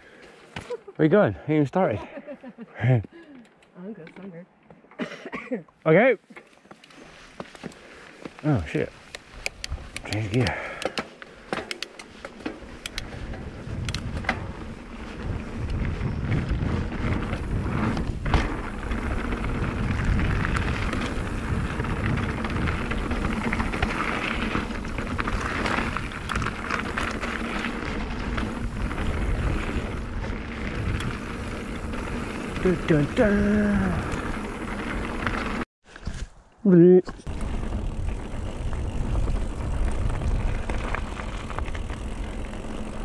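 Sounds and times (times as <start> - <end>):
bike rattling over bumps: 7.0 - 35.6, 37.1 - 43.0
wind on microphone: 13.0 - 32.6.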